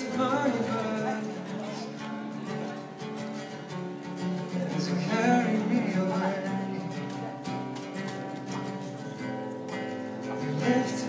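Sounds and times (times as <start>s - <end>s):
acoustic guitar music: 0.0s - 11.0s
person singing: 4.4s - 7.4s, 10.2s - 11.0s.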